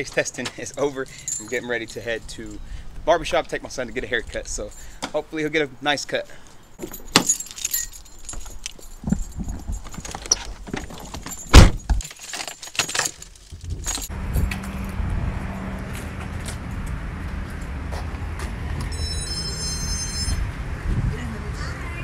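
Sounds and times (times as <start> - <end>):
car keys jingling: 0.0 - 2.8, 6.3 - 14.5
high steady tones: 18.9 - 20.6.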